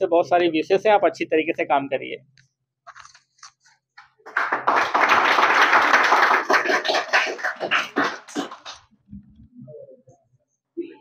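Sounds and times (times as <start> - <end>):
people clapping: 4.0 - 8.8.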